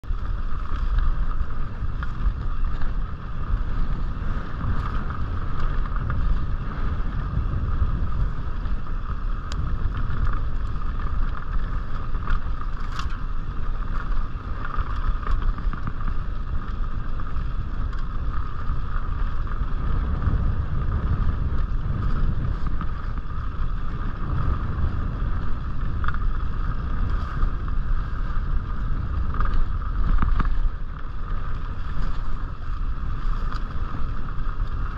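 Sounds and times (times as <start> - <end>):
bike clicks and rattles: 0.0 - 34.9
wind buffeting microphone: 0.0 - 34.9.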